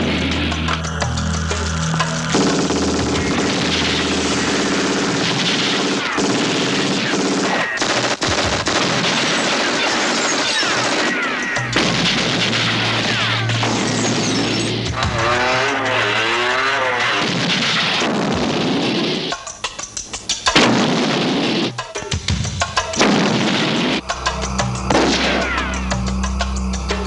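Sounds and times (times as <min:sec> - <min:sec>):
film score music: 0:00.0 - 0:27.0
rapid gunfire: 0:02.3 - 0:19.3, 0:20.5 - 0:21.8, 0:22.9 - 0:24.0.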